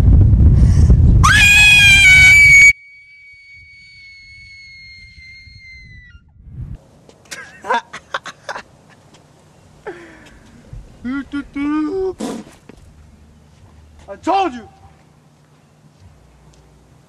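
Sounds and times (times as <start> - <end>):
low rumble: 0.0 - 1.3, 6.2 - 6.8
loud high-pitched scream: 1.2 - 6.2.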